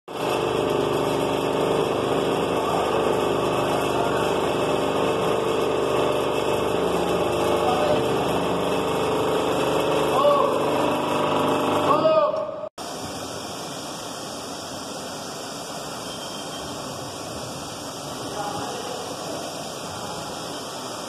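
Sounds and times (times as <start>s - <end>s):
machinery humming: 0.1s - 21.0s.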